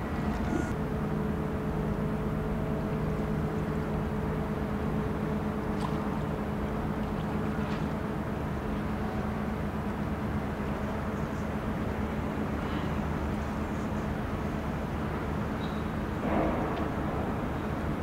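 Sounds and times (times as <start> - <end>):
ship engine humming: 0.0 - 10.8.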